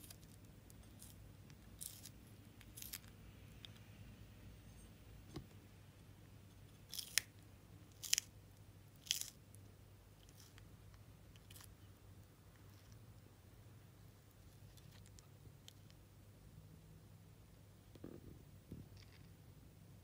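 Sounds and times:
tortoise crunching lettuce: 0:01.8 - 0:03.1, 0:07.9 - 0:08.3, 0:08.9 - 0:09.4.

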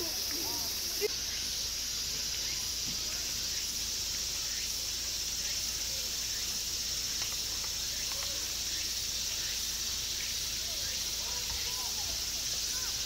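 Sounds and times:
insects chirping chorus: 0:00.0 - 0:13.0
faint distant voices: 0:04.8 - 0:13.0.

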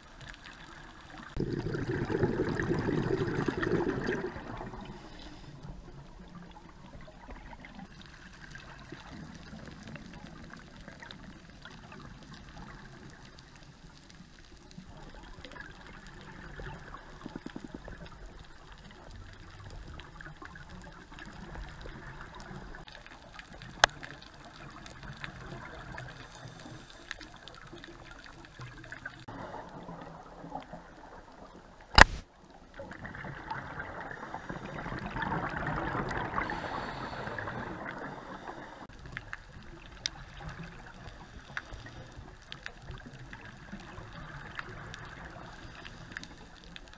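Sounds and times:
low underwater bubbling wash: 0:00.0 - 0:46.9
diver exhaling bubbles: 0:01.3 - 0:05.4
sharp click: 0:32.0 - 0:32.2.

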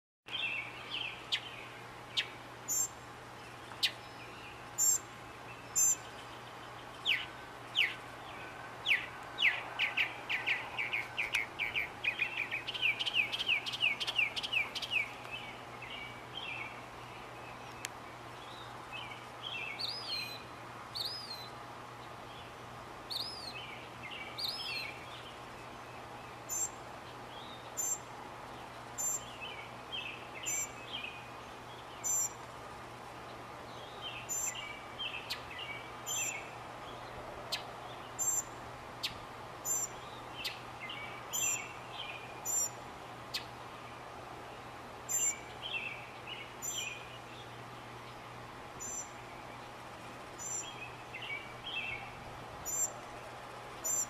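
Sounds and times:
background noise: 0:00.3 - 0:54.0
mockingbird singing: 0:03.7 - 0:16.7, 0:38.2 - 0:43.5, 0:48.8 - 0:49.7, 0:50.4 - 0:53.0.

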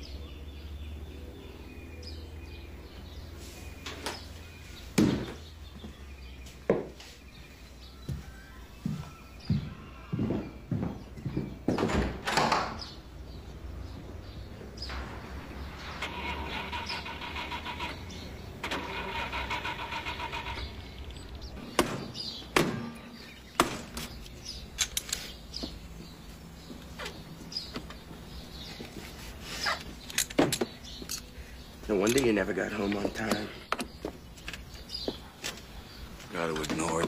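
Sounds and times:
knocks and clunks: 0:09.5 - 0:13.0.

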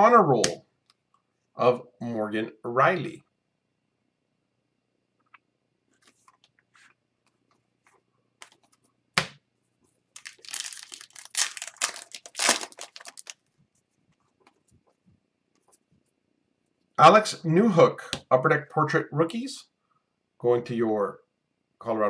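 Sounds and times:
foil wrapper tearing and crinkling: 0:10.2 - 0:13.4.

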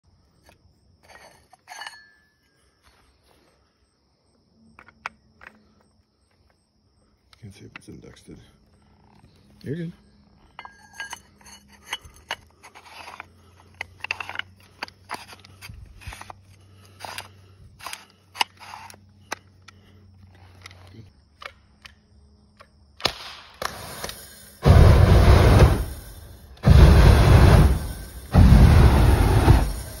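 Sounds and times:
flamethrower firing burst: 0:23.1 - 0:30.0
rushing hiss of fuel stream: 0:23.6 - 0:30.0.

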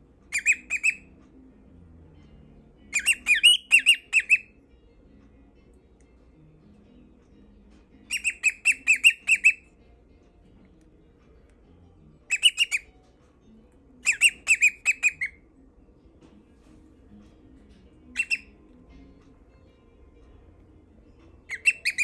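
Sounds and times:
cockatiel chirping: 0:00.3 - 0:01.1, 0:02.9 - 0:04.5, 0:08.1 - 0:09.7, 0:12.3 - 0:12.9, 0:14.0 - 0:15.4, 0:18.1 - 0:18.6, 0:21.4 - 0:22.0.

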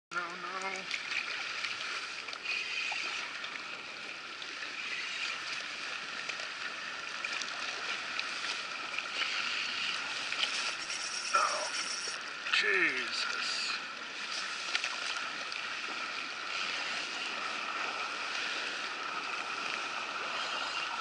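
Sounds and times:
water lapping against kayak hull: 0:00.1 - 0:21.0.

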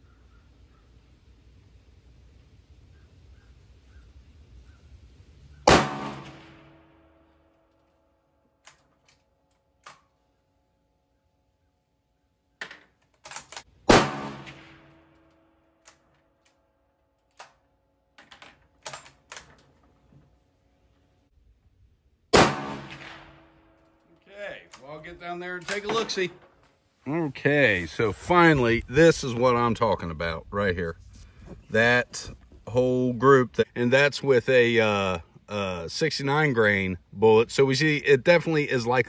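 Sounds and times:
rifle shots: 0:05.7 - 0:06.9, 0:13.8 - 0:15.1, 0:22.3 - 0:23.7.

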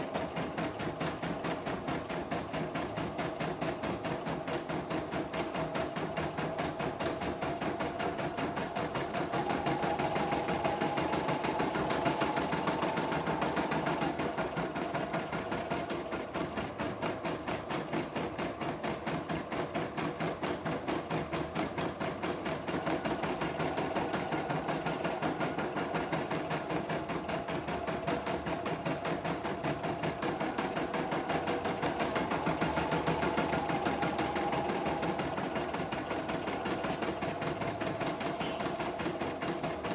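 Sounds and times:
embroidery machine stitching: 0:00.0 - 0:39.9
machine whine: 0:06.5 - 0:16.7, 0:22.7 - 0:39.9.

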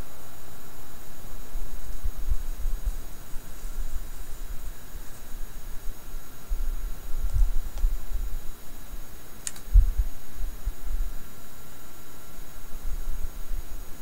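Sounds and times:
faint electrical hum: 0:00.0 - 0:14.0
mouse clicking among plastic cups: 0:09.4 - 0:09.7.

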